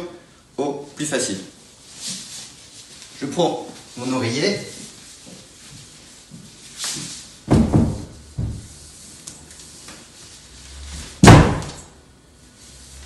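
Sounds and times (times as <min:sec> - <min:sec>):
hands and body thumping floor: 0:06.9 - 0:08.7
heels banging against a door: 0:07.5 - 0:08.7.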